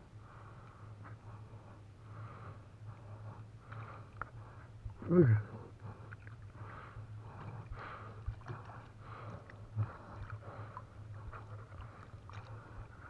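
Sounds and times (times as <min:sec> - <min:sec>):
river water splashing: 0:08.0 - 0:13.0.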